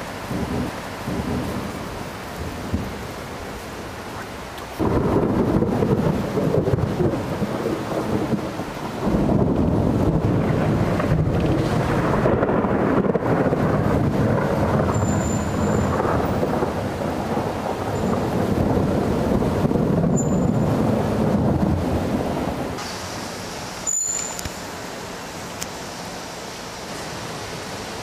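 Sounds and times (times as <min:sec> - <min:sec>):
rolling thunder: 0:00.0 - 0:03.1, 0:04.8 - 0:22.8.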